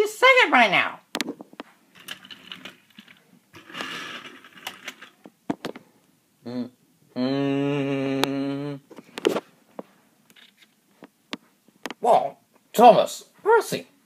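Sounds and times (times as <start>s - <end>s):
toy trains clicking: 2.0s - 5.2s.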